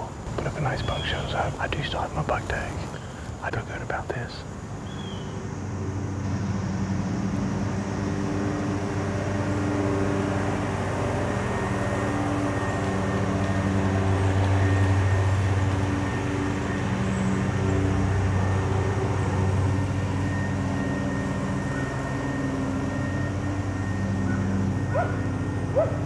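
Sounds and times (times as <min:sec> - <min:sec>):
lawn mower engine running: 0:05.4 - 0:26.0.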